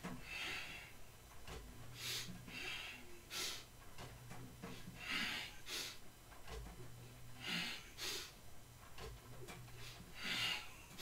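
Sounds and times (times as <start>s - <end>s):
faint low hum: 0.0s - 11.0s
man breathing hard: 0.1s - 1.1s, 1.9s - 3.7s, 4.7s - 6.1s, 7.3s - 8.4s, 9.8s - 11.0s.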